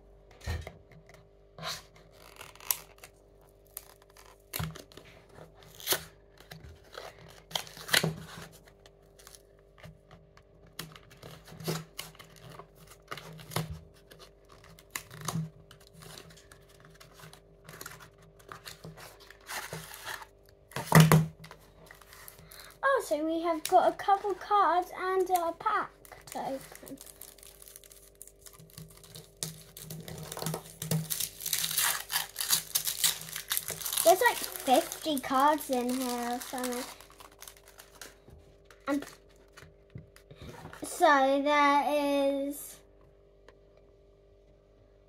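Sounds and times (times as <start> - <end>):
cardboard box tearing: 26.8 - 38.0.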